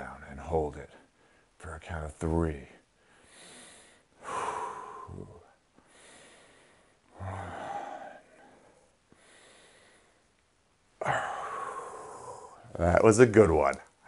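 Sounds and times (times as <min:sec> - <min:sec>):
man breathing hard: 0:03.0 - 0:10.3, 0:11.0 - 0:12.7.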